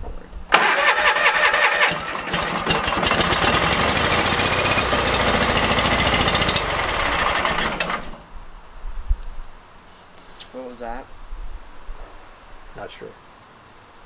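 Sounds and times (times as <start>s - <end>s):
tractor engine running: 0.5s - 8.2s.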